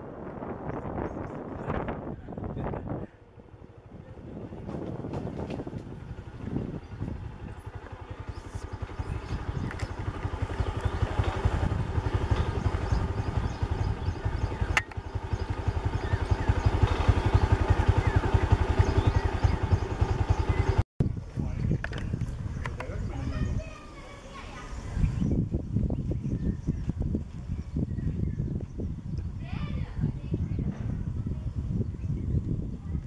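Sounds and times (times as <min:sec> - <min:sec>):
motorcycle engine puttering: 0:03.2 - 0:23.6
sharp click: 0:14.7 - 0:15.0.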